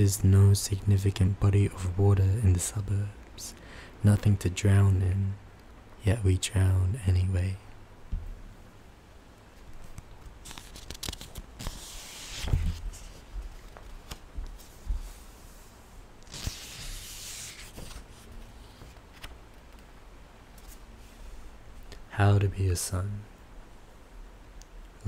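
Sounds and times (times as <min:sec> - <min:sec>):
book pages clicking: 0:09.8 - 0:12.8, 0:18.7 - 0:19.8
papery page swishes: 0:09.8 - 0:19.4.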